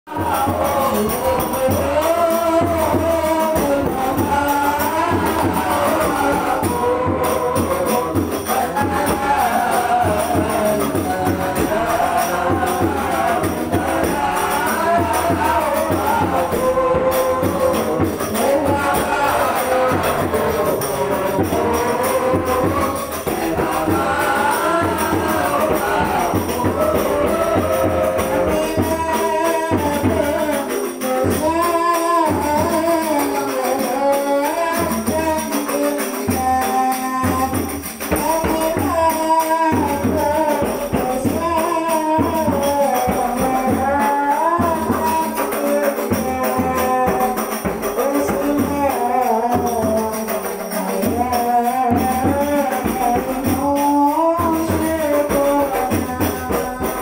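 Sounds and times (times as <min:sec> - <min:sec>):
background music with busy beat: 0:00.1 - 0:57.0.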